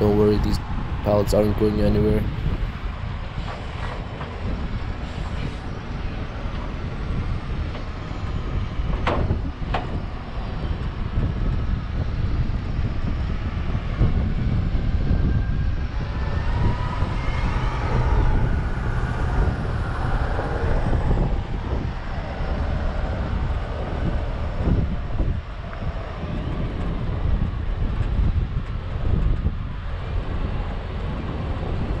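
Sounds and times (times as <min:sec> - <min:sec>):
vehicle engine rumbling: 0:00.0 - 0:32.0
high-pitched whine: 0:10.0 - 0:27.8.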